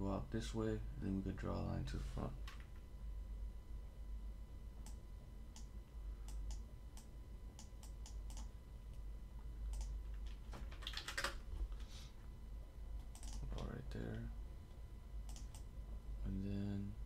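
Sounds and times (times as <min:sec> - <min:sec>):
low steady hum: 0:00.0 - 0:17.0
mouse and keyboard clicks: 0:13.1 - 0:13.4.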